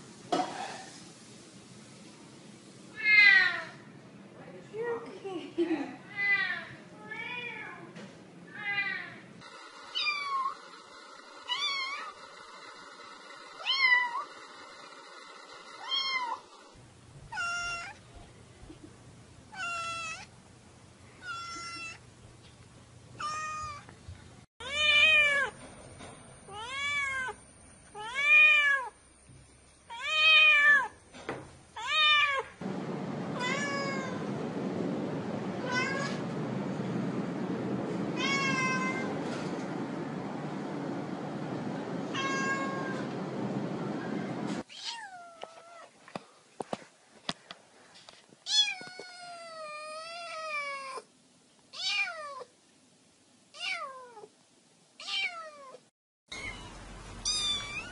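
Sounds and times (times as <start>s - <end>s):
steady hiss: 0.0s - 3.0s
cat meowing: 17.3s - 18.0s, 33.4s - 34.2s, 35.6s - 36.2s, 38.2s - 39.1s, 42.1s - 43.0s, 51.7s - 52.5s, 53.6s - 54.3s, 55.0s - 57.9s.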